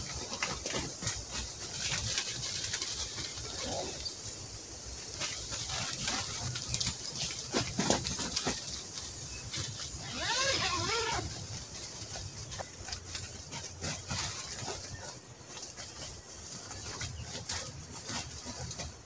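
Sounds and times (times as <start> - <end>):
light rustles and clicks: 0.0 - 19.0
dog whining: 10.0 - 11.3.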